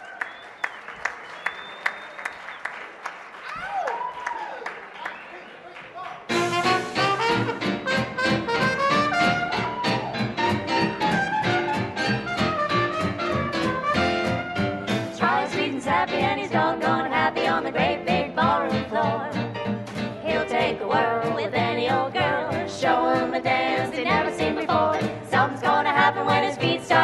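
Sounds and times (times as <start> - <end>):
jazz band playing swing: 6.3 - 27.0
women singing close harmony: 15.1 - 19.5, 20.2 - 27.0.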